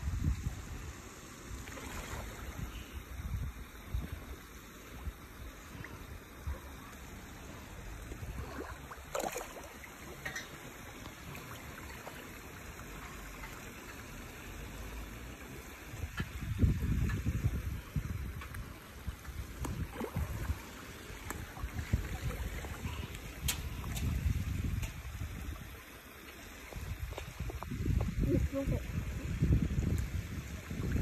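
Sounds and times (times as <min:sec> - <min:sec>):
water sloshing and splashing: 0:01.5 - 0:02.8, 0:05.0 - 0:14.6, 0:16.0 - 0:28.2.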